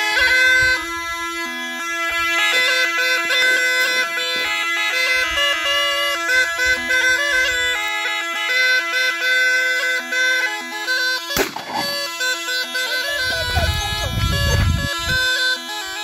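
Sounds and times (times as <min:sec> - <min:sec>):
bagpipe-like melody over drone: 0:00.0 - 0:16.0.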